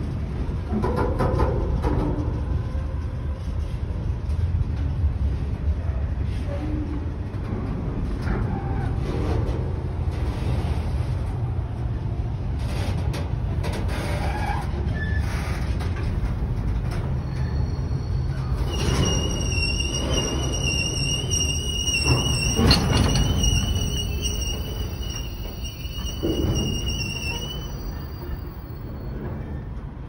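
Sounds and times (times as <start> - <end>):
train wheels rumbling on rails: 0.0 - 30.0
high wheel squeal: 17.2 - 29.7.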